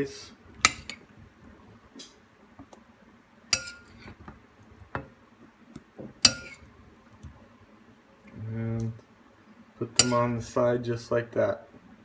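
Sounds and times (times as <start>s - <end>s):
spoon clinking against bowl: 3.6s - 4.0s, 6.2s - 6.6s, 10.0s - 10.3s.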